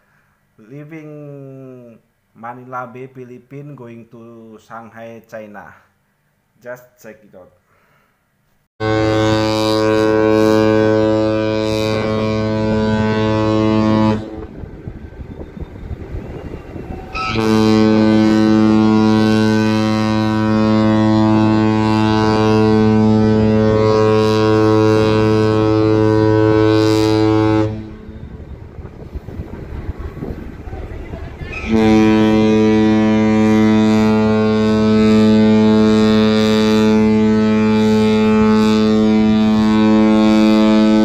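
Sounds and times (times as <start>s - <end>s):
ship's horn blasts: 8.8s - 41.0s
rushing noise: 14.0s - 20.7s, 24.5s - 33.2s.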